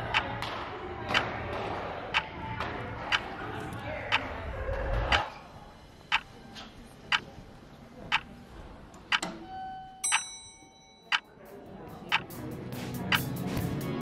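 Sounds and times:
bright ringing ding: 9.5s - 11.3s.

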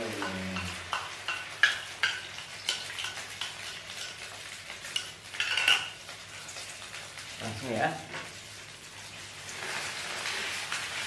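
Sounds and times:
egg and rice sizzling in oil: 0.0s - 11.0s.

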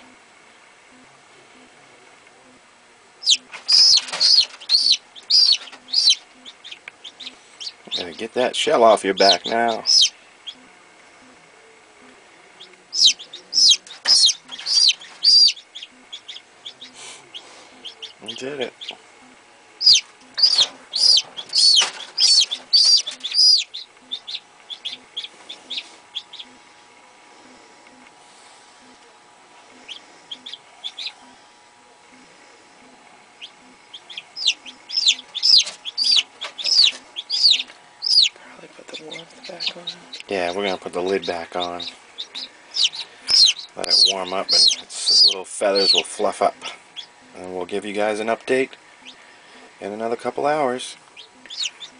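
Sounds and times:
chick peeping shrilly: 3.2s - 8.2s, 9.0s - 10.7s, 12.6s - 19.0s, 19.8s - 26.6s, 29.7s - 31.4s, 33.4s - 38.4s, 39.0s - 46.3s, 46.9s - 47.2s, 49.0s - 49.2s, 51.2s - 51.9s.

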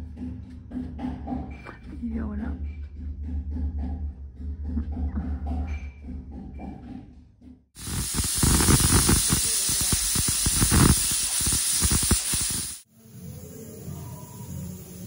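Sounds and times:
sputtering rattle: 7.8s - 12.9s
pressure cooker whistle hissing: 7.8s - 15.0s.

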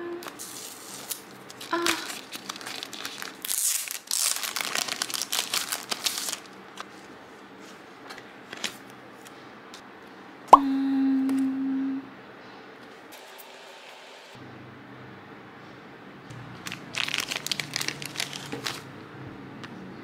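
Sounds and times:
plastic packaging crinkling and tearing: 0.2s - 7.0s, 16.6s - 18.9s.

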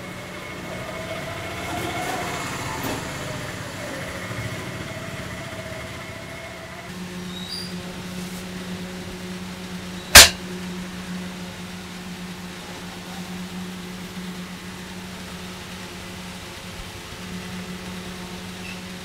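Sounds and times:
steady low hum: 4.8s - 19.0s
sharp loud click: 10.2s - 10.4s.

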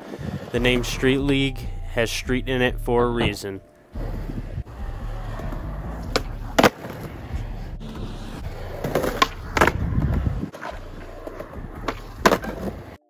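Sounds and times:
skateboard wheels rolling on concrete: 0.0s - 1.1s, 3.9s - 13.0s
skateboard clacks: 4.7s - 13.0s.

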